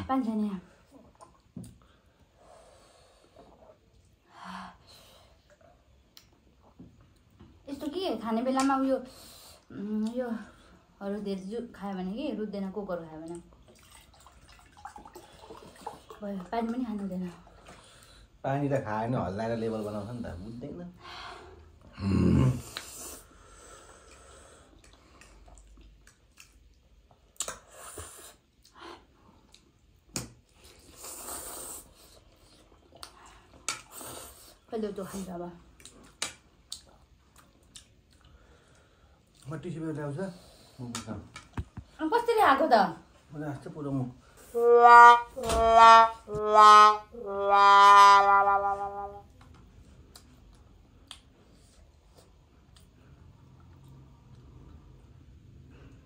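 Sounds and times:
descending brass notes: 0:44.5 - 0:49.3.

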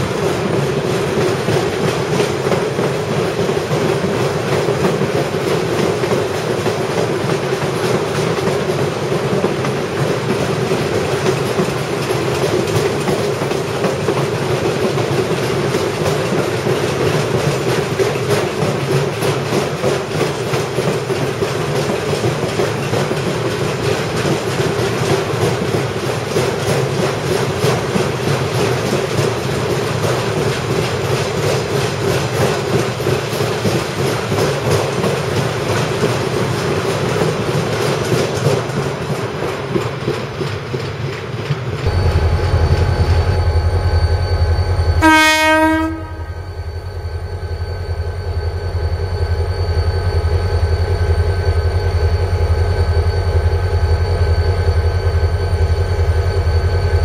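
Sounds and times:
diesel locomotive engine hum: 0:00.0 - 0:57.0
train wheels clattering on rails: 0:00.0 - 0:57.0
train horn blast: 0:45.0 - 0:46.4.

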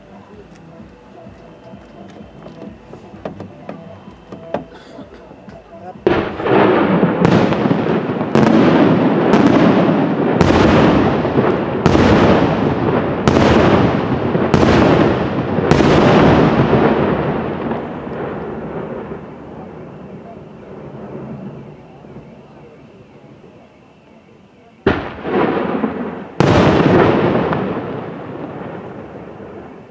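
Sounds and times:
echoing rumble: 0:01.0 - 0:22.6.

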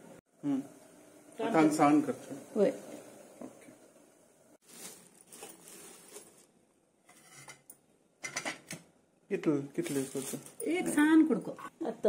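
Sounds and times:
rustling of leaves: 0:04.6 - 0:06.5, 0:09.8 - 0:10.6.

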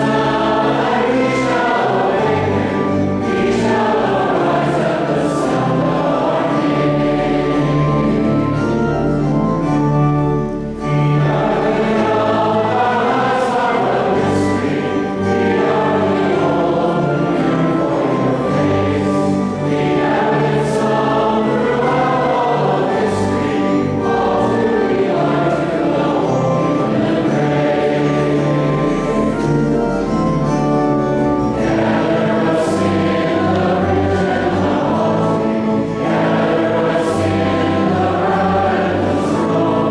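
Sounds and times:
church choir singing a hymn: 0:00.0 - 0:39.9.

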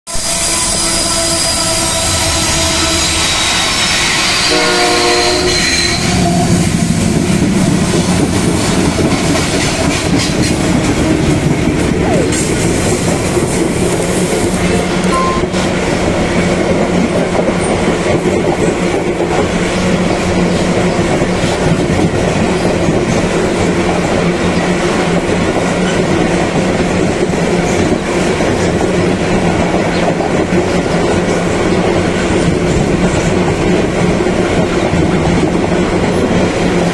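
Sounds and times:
locomotive horn chord: 0:04.5 - 0:06.0
freight wagons rumbling: 0:05.9 - 0:36.9
wheels clacking over rail joints: 0:07.0 - 0:36.9.

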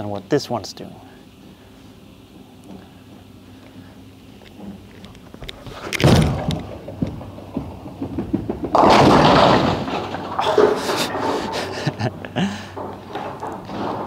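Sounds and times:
bowling ball crashing into pins: 0:05.8 - 0:11.6, 0:12.7 - 0:14.0
bowling ball thud on lane: 0:06.0 - 0:10.9.

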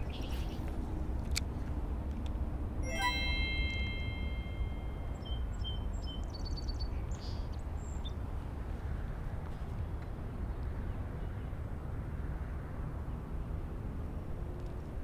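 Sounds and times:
bright chime: 0:02.8 - 0:05.3.

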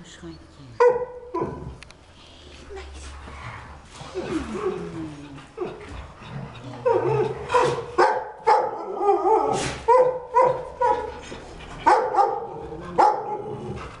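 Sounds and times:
large dog barking: 0:00.8 - 0:01.8, 0:07.4 - 0:11.2, 0:11.8 - 0:13.8.

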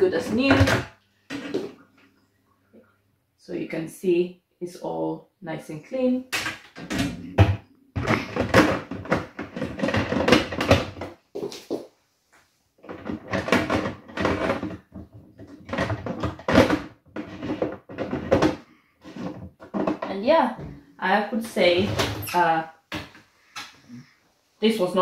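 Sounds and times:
dishwasher racks clattering: 0:06.4 - 0:11.0, 0:12.9 - 0:18.6, 0:21.4 - 0:23.1.

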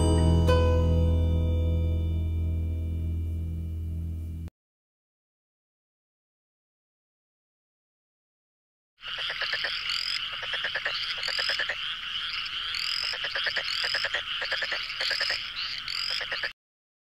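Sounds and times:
rapid clicking animal calls: 0:09.0 - 0:16.6.

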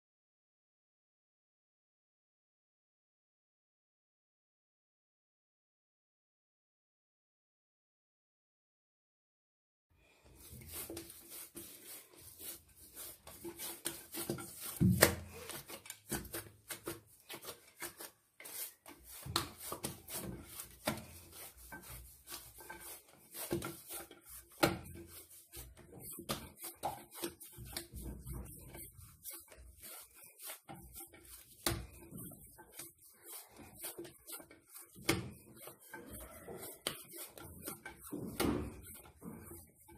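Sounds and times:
hands kneading dough in clay dish: 0:10.1 - 0:39.9.

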